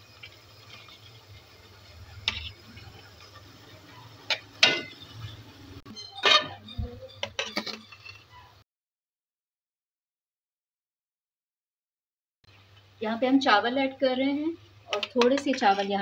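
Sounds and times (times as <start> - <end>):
metal utensils clinking on bowl: 6.0 - 8.2.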